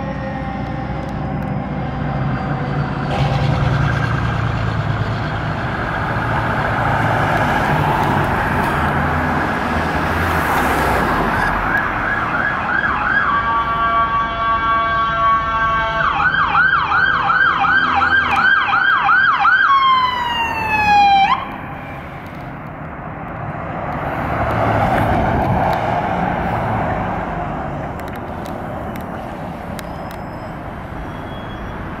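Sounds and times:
electronic siren yelping: 11.4 - 21.9.

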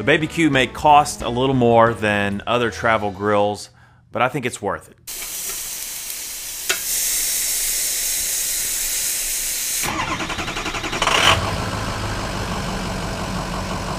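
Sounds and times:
meat sizzling on grill: 5.1 - 9.8.

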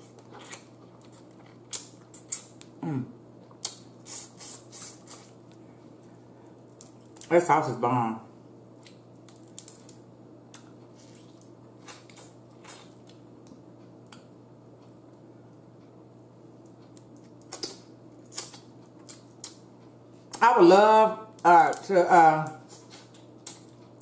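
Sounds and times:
crab shell cracking: 8.8 - 10.7.

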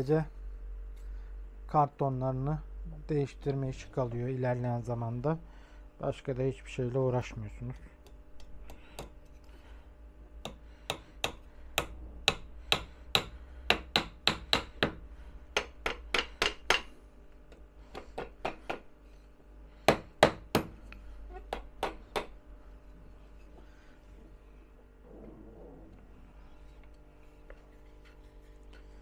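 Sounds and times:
hammer tapping nails into wood: 10.4 - 15.0, 15.6 - 16.9, 17.5 - 18.8, 19.9 - 20.8.

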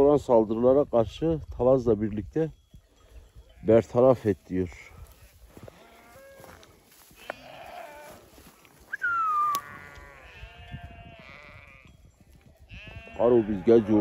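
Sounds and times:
sheep bleating: 5.6 - 8.2, 9.3 - 12.0, 12.6 - 14.0.

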